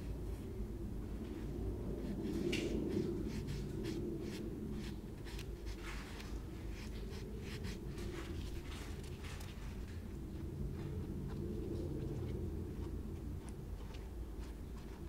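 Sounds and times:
sponge rubbing wet plaster: 0:01.9 - 0:09.5, 0:11.2 - 0:15.0.

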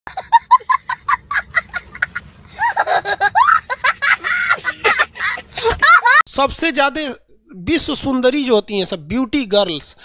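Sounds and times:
young child laughing: 0:00.1 - 0:06.2.

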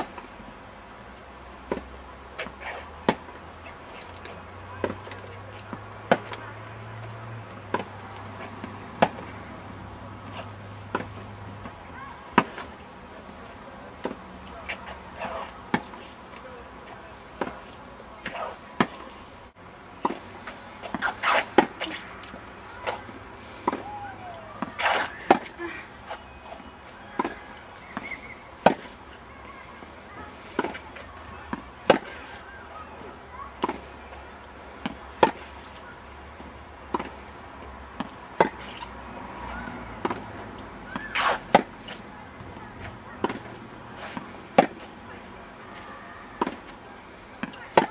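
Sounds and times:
tennis racket hitting ball: 0:03.9 - 0:09.4, 0:10.2 - 0:12.8, 0:14.0 - 0:16.1, 0:17.4 - 0:19.2, 0:20.0 - 0:29.1, 0:30.2 - 0:32.4, 0:33.6 - 0:33.9, 0:34.8 - 0:35.8, 0:38.0 - 0:39.0, 0:39.6 - 0:44.9, 0:45.7 - 0:46.8, 0:47.4 - 0:47.9
ball bouncing: 0:47.4 - 0:47.9.

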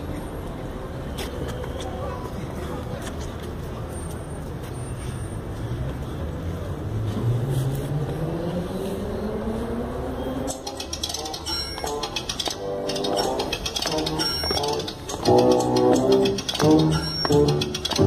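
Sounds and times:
street noise: 0:00.0 - 0:18.0
vehicle engine pulling away: 0:06.3 - 0:10.8.

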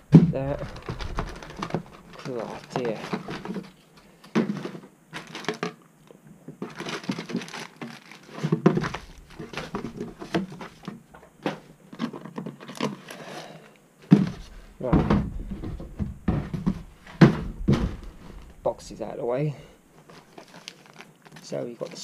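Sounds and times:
parts knocking against box: 0:00.0 - 0:05.7, 0:14.1 - 0:18.6
plastic bags crinkling: 0:00.4 - 0:03.8, 0:04.6 - 0:05.7, 0:06.6 - 0:10.9, 0:20.0 - 0:22.0.

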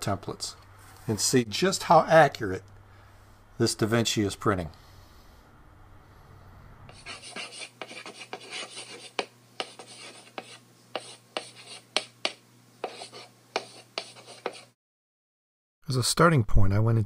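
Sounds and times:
chalk writing on a blackboard: 0:06.9 - 0:14.8.

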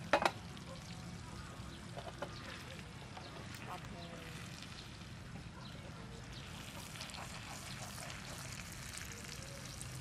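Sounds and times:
eggs sizzling in a pan: 0:06.2 - 0:10.0.

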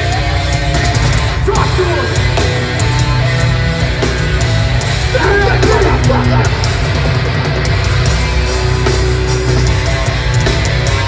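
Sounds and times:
live hardcore band playing: 0:00.0 - 0:11.0.

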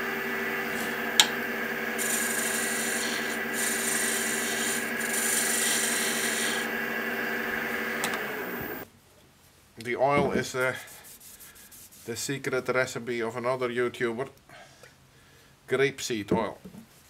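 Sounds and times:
turning tool cutting wood hiss: 0:00.0 - 0:08.8
wood lathe humming: 0:00.0 - 0:08.8.

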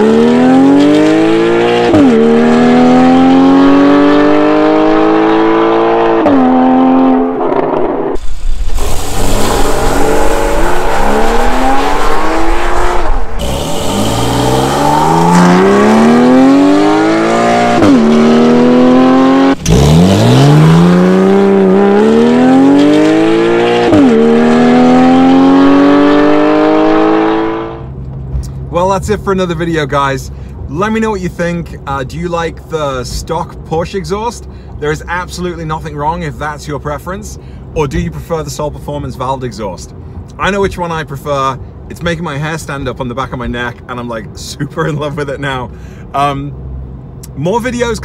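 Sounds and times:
sports car engine accelerating hard: 0:00.0 - 0:08.2, 0:09.0 - 0:28.7.

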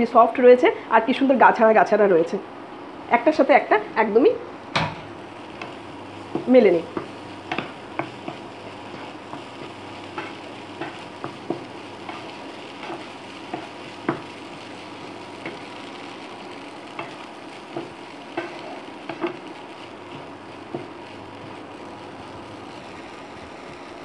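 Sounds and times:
soft steady sizzle: 0:00.0 - 0:24.0
spatula scraping frying pan: 0:05.6 - 0:21.6.

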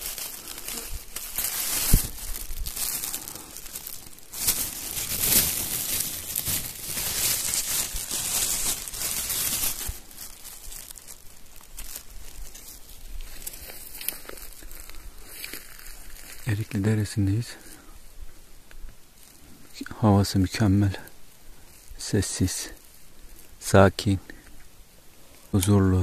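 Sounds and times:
plastic bag crinkling: 0:00.0 - 0:16.6.

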